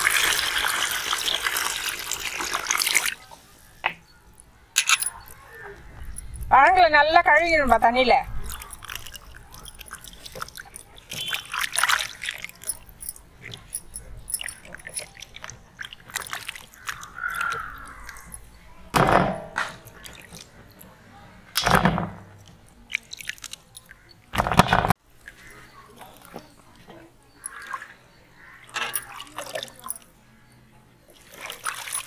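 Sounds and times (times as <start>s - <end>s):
water sloshing and splashing: 8.0s - 18.7s, 19.8s - 20.9s, 21.7s - 30.3s, 31.0s - 32.0s.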